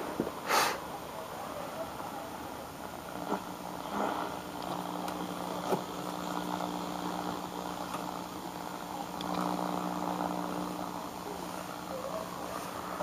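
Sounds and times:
steady hum: 0.0 - 13.0
radio static: 3.0 - 13.0.

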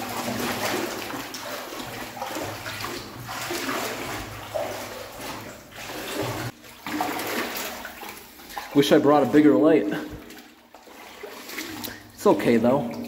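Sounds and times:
water sloshing and splashing: 0.0 - 13.0.

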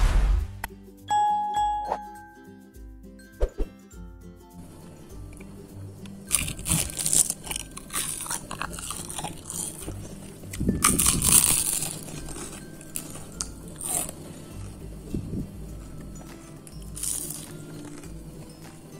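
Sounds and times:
crunching fried potato sticks: 5.2 - 18.9.

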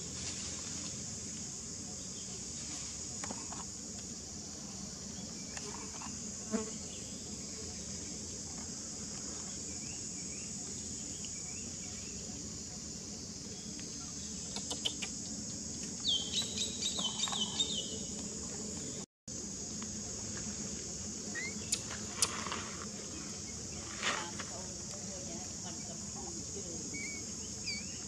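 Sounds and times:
high-pitched insect drone: 0.0 - 28.0
short high squeaks: 21.3 - 22.5.

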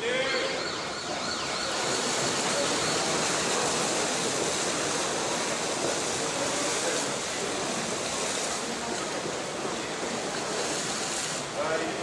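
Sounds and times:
pool water rushing and splashing: 0.0 - 12.0.

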